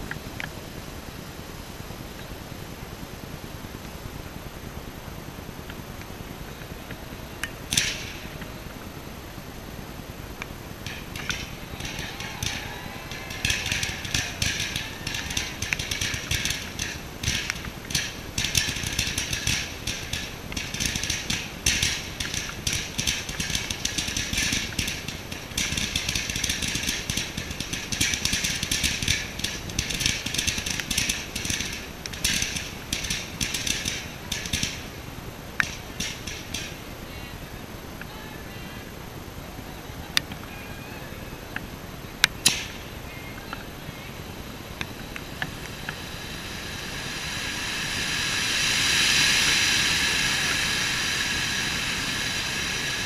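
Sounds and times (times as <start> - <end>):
firework hissing: 1.8 - 40.5, 41.4 - 53.0
small firework pop: 42.4 - 42.8.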